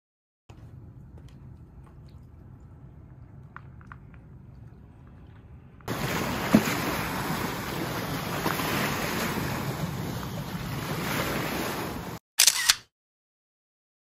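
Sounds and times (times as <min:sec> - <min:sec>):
lake waves splashing against rocks: 0:05.9 - 0:12.2
camera shutter click: 0:12.4 - 0:12.9.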